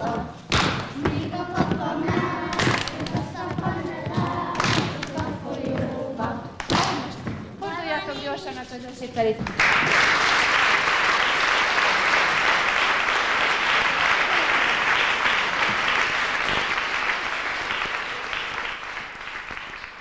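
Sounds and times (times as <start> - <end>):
audience applauding: 9.5 - 20.0.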